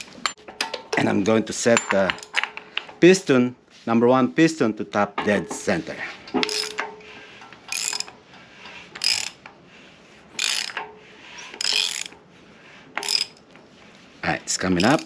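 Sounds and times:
ratchet wrench clicking: 6.4s - 6.9s, 7.7s - 8.2s, 9.0s - 9.5s, 10.4s - 12.2s, 13.0s - 13.4s.

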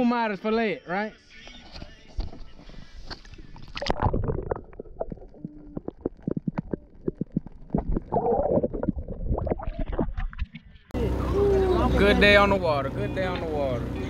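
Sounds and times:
underwater gurgling and bubbling: 2.9s - 10.8s.

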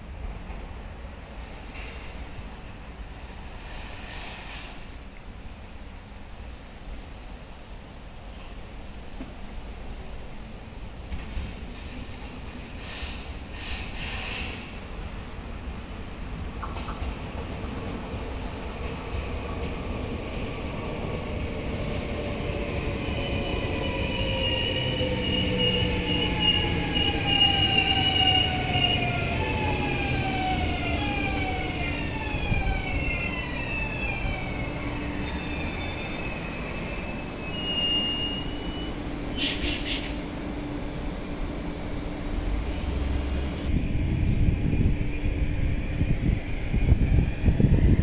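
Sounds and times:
train wheels rumbling on rails: 0.0s - 5.3s, 10.8s - 48.0s
high squeal: 3.0s - 4.8s, 23.0s - 29.3s, 30.3s - 40.1s.

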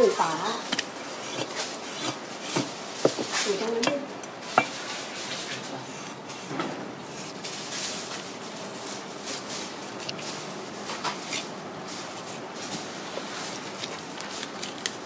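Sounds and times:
knife scraping fish scales: 0.7s - 3.6s.

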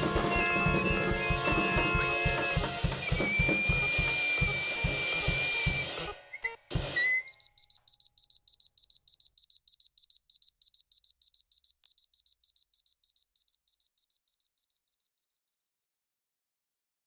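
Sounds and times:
electronic alarm beeping: 0.0s - 15.7s.

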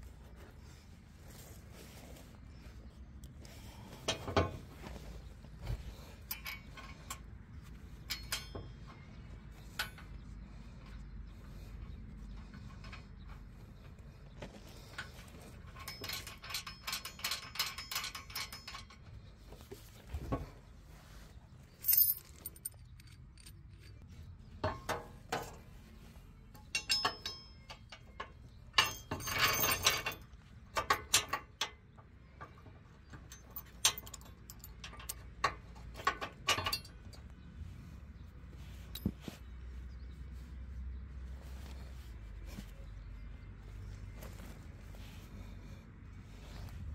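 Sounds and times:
small metal parts clinking: 5.9s - 11.0s, 14.8s - 19.3s, 21.7s - 24.0s, 26.6s - 31.7s, 33.1s - 37.3s.

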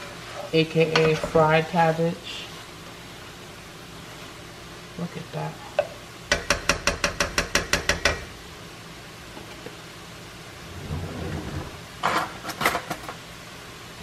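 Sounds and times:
spoon tapping on metal skillet: 5.8s - 8.3s.

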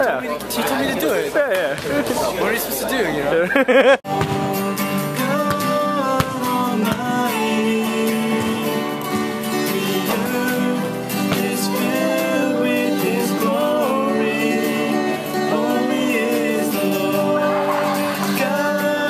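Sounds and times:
acoustic guitars strummed: 4.1s - 19.0s
man singing: 4.2s - 19.0s.

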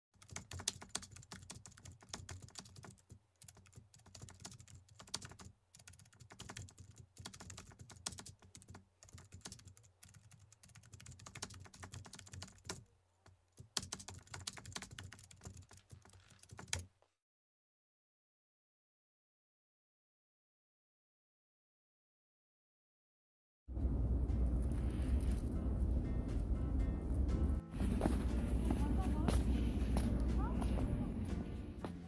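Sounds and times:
typing on computer keyboard: 0.2s - 12.8s, 13.6s - 16.9s.

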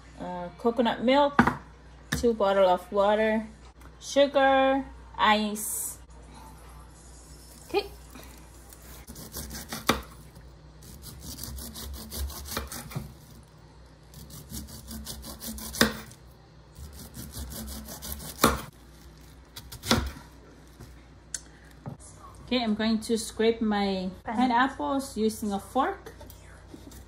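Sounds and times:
knife sawing pineapple skin: 8.3s - 10.2s, 10.8s - 13.4s, 14.1s - 16.2s, 16.8s - 18.7s.

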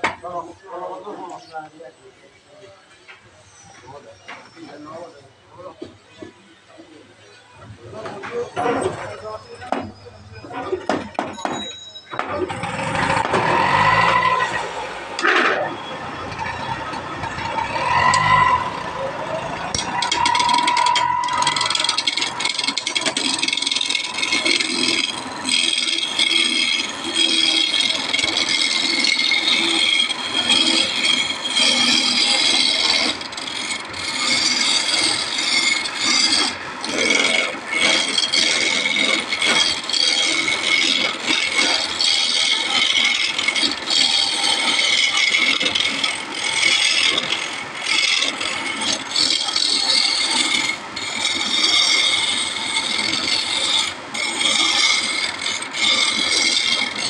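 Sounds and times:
gouge scraping wood on lathe: 12.5s - 57.0s.

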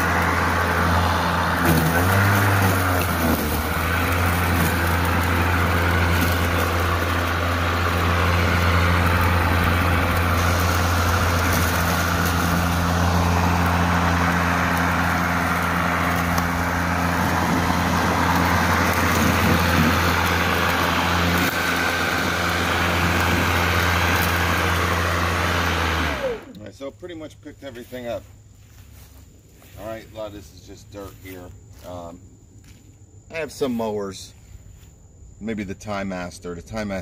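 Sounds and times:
electric lawn mower running: 0.0s - 26.7s
spinning mower blade rushing: 0.0s - 26.7s.

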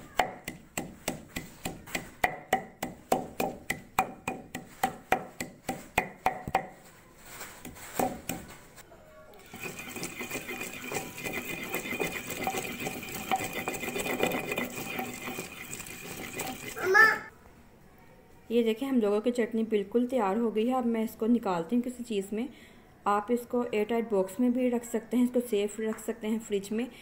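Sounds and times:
wooden pestle pounding in mortar: 0.0s - 6.8s, 7.6s - 8.5s, 9.5s - 16.8s
pestle scraping grind: 0.1s - 6.7s, 9.4s - 16.8s.

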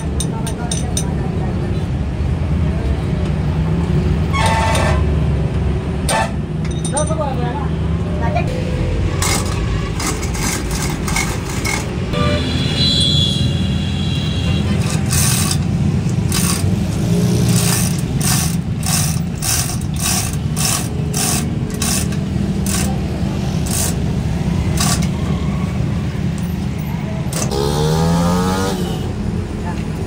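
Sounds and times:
chain hoist rattling and clicking: 14.8s - 23.0s, 23.6s - 24.1s, 24.7s - 25.2s.

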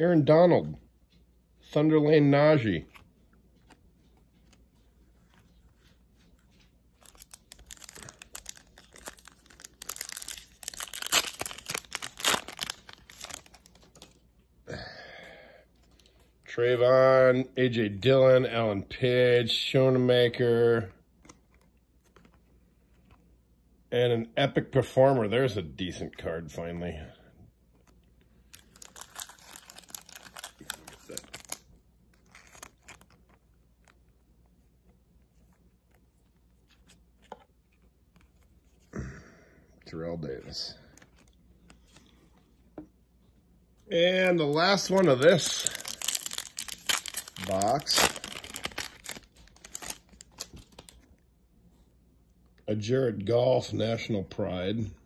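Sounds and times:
foil wrapper tearing and crinkling: 7.0s - 14.2s, 28.5s - 34.0s, 44.2s - 51.0s.

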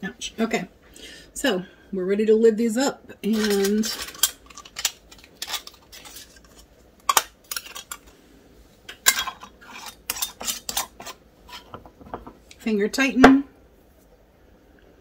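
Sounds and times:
metal lids clinking on glass jars: 3.2s - 8.1s, 8.9s - 11.8s.

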